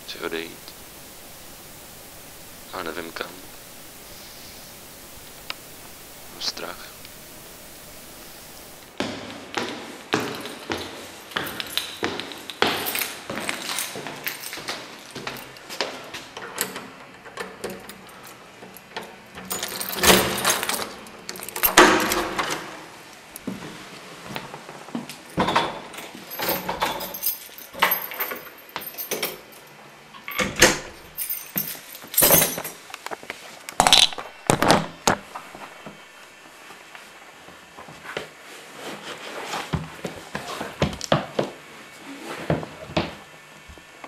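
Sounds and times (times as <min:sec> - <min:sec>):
objects knocking and clattering: 0:25.4 - 0:29.3
light jangling: 0:26.3 - 0:29.7, 0:31.1 - 0:32.8.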